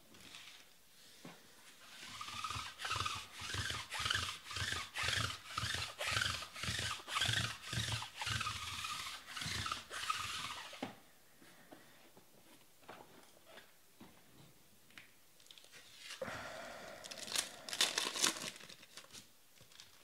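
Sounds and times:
rhythmic rubbing strokes: 0:01.8 - 0:10.8.

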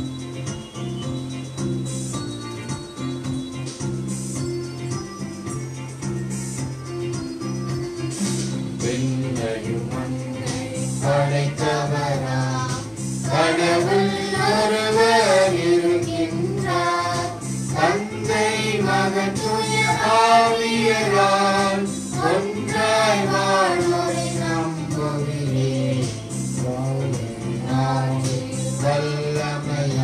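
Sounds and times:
choir singing a hymn: 0:08.9 - 0:26.2, 0:26.8 - 0:30.0.

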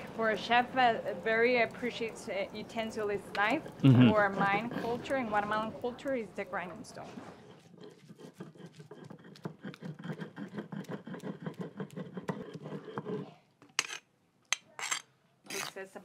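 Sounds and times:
stone scraping over stone: 0:07.0 - 0:15.8.

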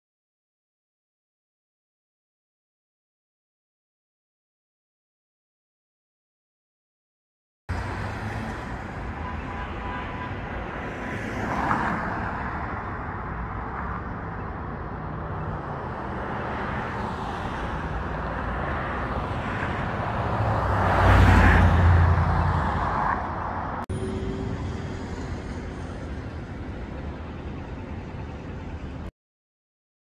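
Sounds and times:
road traffic rumble: 0:07.7 - 0:29.1.

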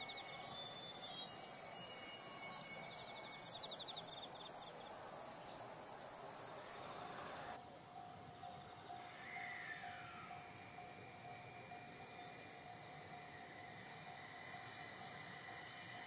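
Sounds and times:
insects chirping and trilling: 0:00.0 - 0:07.6
faint train running: 0:00.0 - 0:16.0.

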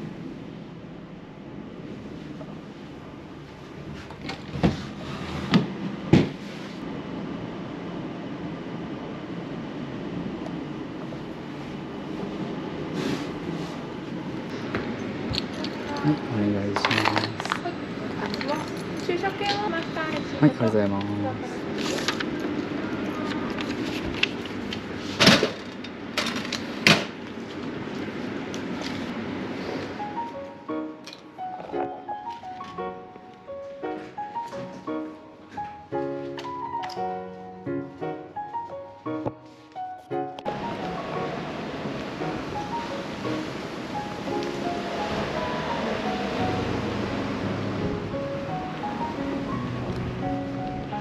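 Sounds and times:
steady background hum: 0:00.0 - 0:51.0
steady low rumble: 0:40.5 - 0:51.0.

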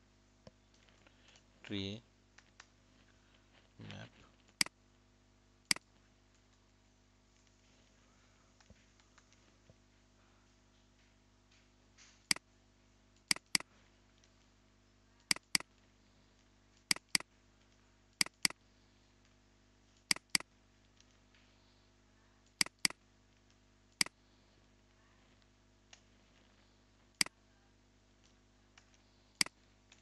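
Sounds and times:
mouse button clicking: 0:13.3 - 0:13.6, 0:15.3 - 0:15.6, 0:16.9 - 0:17.2, 0:18.2 - 0:18.6, 0:20.1 - 0:20.4, 0:22.6 - 0:23.0.

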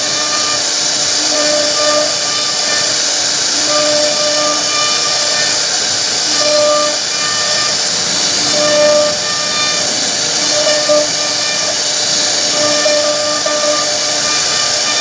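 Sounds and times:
cnc router cutting wood: 0:00.0 - 0:15.0
machine whining tones: 0:00.0 - 0:15.0.

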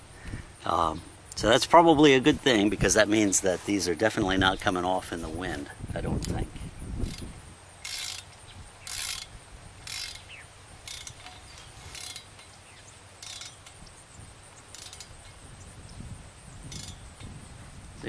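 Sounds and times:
ratchet wrench clicking: 0:07.0 - 0:12.5, 0:13.2 - 0:13.8, 0:14.7 - 0:15.4, 0:16.7 - 0:17.4.

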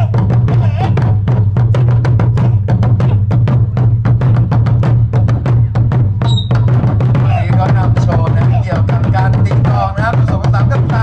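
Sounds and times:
barrel drums struck with sticks: 0:00.0 - 0:11.0.

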